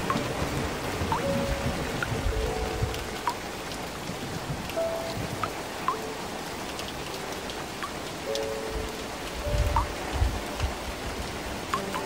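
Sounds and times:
rain falling on water: 0:00.0 - 0:12.0.

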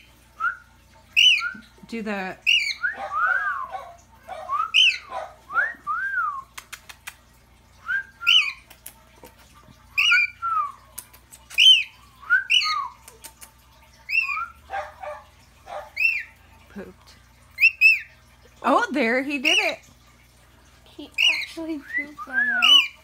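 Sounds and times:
bird whistling: 0:02.5 - 0:03.7, 0:04.5 - 0:06.4, 0:11.6 - 0:13.0, 0:21.2 - 0:23.0
bird chirping: 0:04.4 - 0:05.2.

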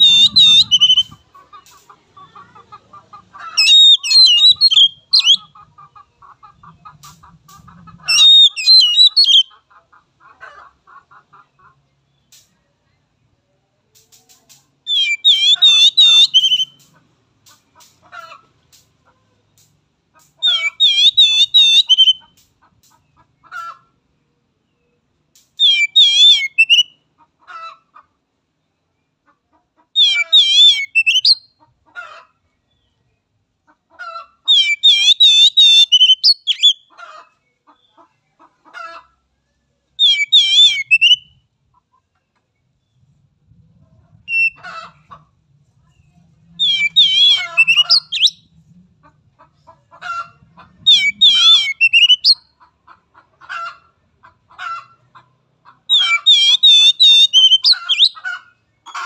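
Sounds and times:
bird singing high wavering phrase: 0:00.0 - 0:01.1.

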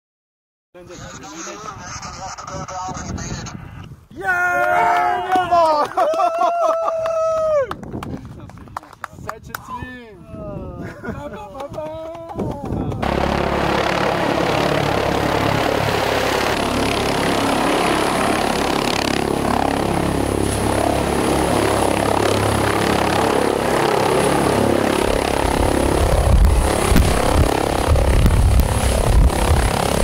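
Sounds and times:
helicopter hovering: 0:00.8 - 0:03.9, 0:12.7 - 0:30.0.

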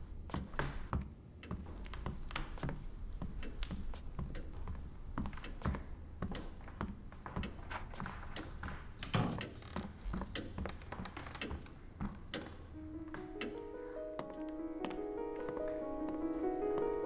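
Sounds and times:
footsteps on wooden floor: 0:00.2 - 0:17.0
piano notes: 0:12.7 - 0:17.0.

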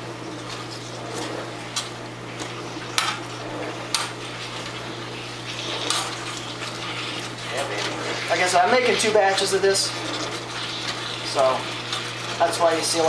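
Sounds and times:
tongs scraping a pan: 0:03.9 - 0:13.0.

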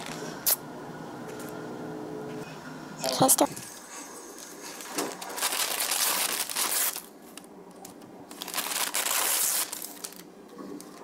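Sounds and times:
plastic piping bag crinkling: 0:04.8 - 0:07.5, 0:08.3 - 0:11.0.

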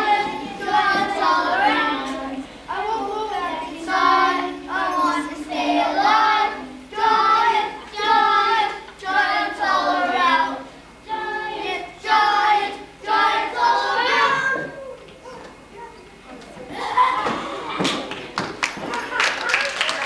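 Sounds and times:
children singing: 0:00.0 - 0:14.8.

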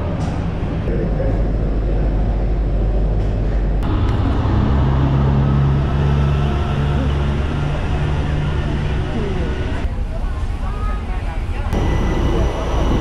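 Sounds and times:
vehicle engines humming: 0:00.0 - 0:10.1, 0:11.6 - 0:13.0
bus engine close by: 0:02.6 - 0:10.5.

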